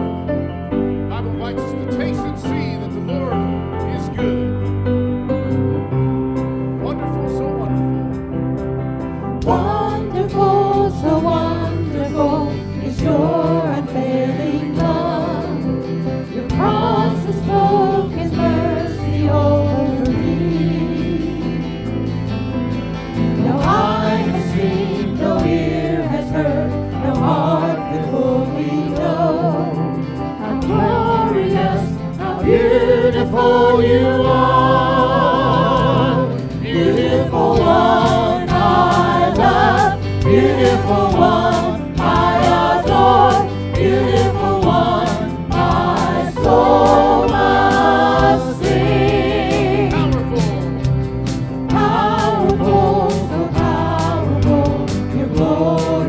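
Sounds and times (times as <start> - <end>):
bass guitar: 0.0 - 56.0
keyboard: 0.0 - 56.0
drums: 2.4 - 56.0
electric guitar: 3.0 - 56.0
people singing: 9.4 - 22.1, 23.2 - 50.8, 51.6 - 56.0.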